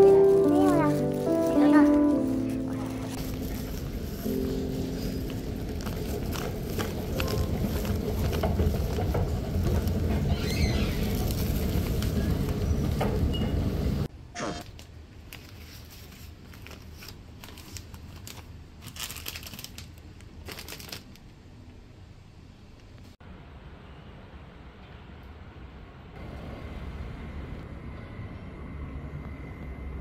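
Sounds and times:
plastic bags crinkling: 0.0 - 9.0, 15.3 - 21.2.

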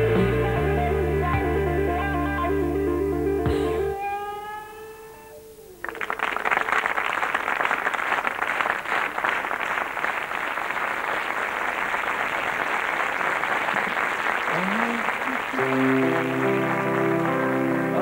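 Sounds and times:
guitar note: 0.0 - 6.0, 14.6 - 18.0
audience applauding: 5.8 - 18.0.

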